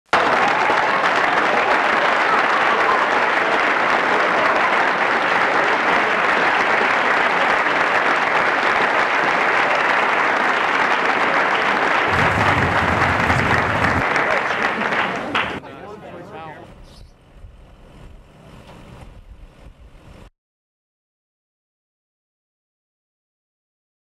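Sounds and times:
applause: 0.1 - 15.6.

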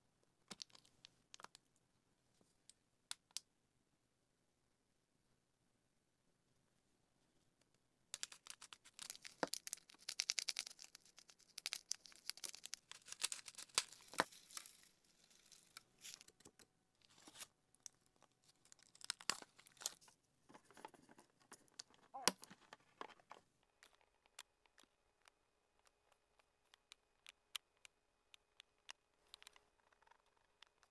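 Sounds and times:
plastic bag crinkling: 8.2 - 16.4.

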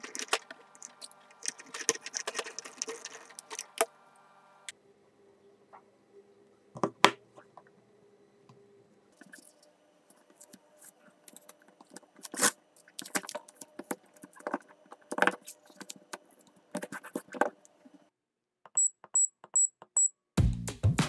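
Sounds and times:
tape crackling and rustling: 0.0 - 3.9, 10.1 - 17.9.

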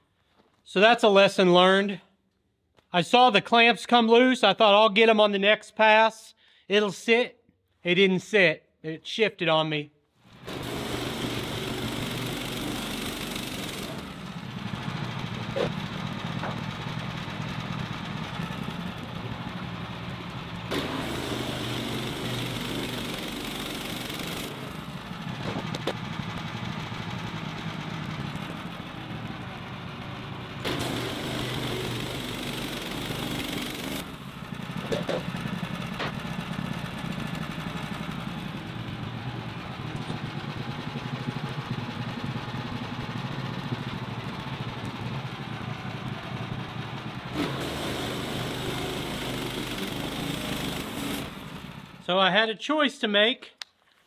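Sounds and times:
sawmill engine running: 10.2 - 52.4.

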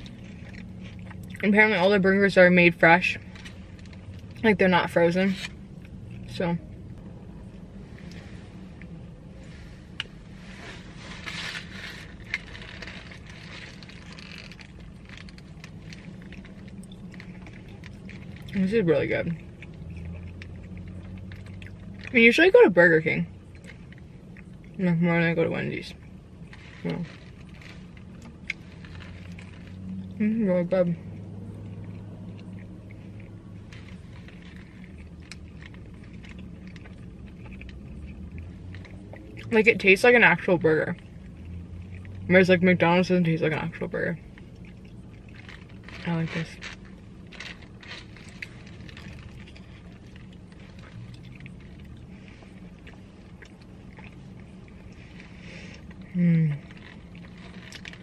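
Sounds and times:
chewing: 0.0 - 1.5, 7.8 - 22.4, 23.2 - 24.8, 25.9 - 30.2, 30.9 - 58.0
steady low hum: 0.0 - 58.0
paper wrapper crinkling: 10.5 - 18.6, 44.3 - 56.0.

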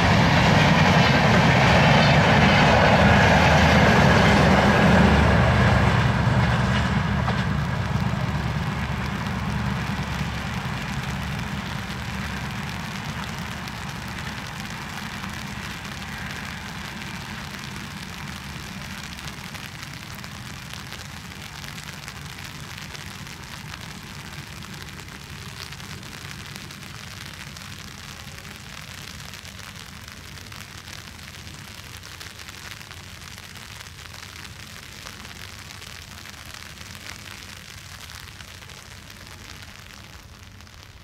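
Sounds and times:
low rumble: 0.0 - 20.6
rain on an umbrella: 0.0 - 41.0.

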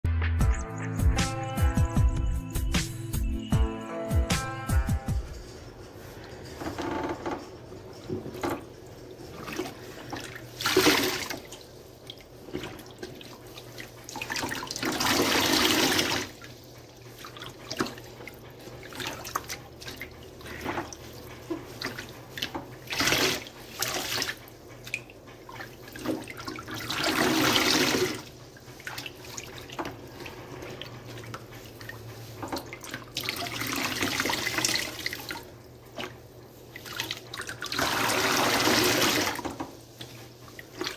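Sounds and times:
soapy water gushing from sponge: 8.3 - 40.9
wet squishing of suds: 8.3 - 40.9.

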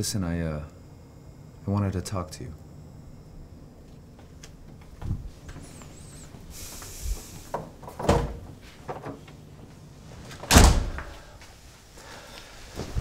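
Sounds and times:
door shutting with heavy thud: 7.4 - 9.2, 10.4 - 11.2.

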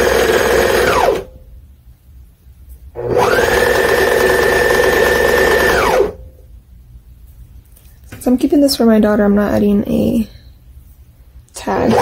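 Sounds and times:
serger sewing machine running: 0.0 - 1.2, 3.0 - 6.2, 11.8 - 12.0.

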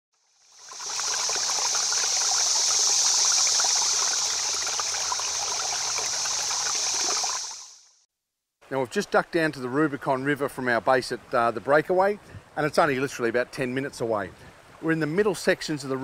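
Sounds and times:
stream babbling over stones: 0.4 - 7.8.

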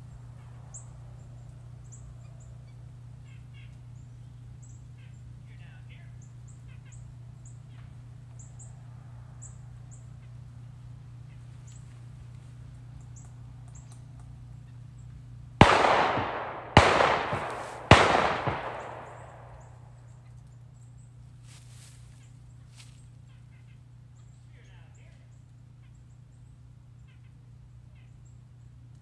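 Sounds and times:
gunshots with rolling echo: 15.6 - 20.1.

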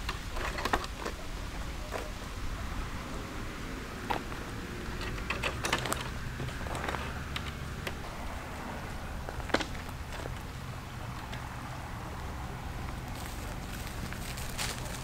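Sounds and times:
low steady rumble: 0.0 - 15.0
light clicks and knocks: 4.0 - 8.0.

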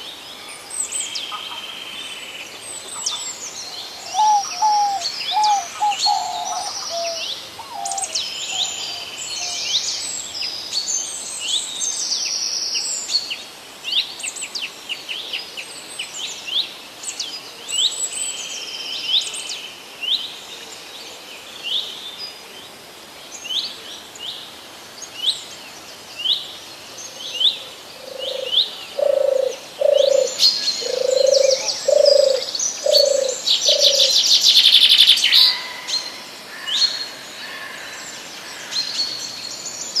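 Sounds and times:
songbirds chirping: 0.0 - 40.0
bird low calls: 3.8 - 9.6, 27.6 - 38.7.

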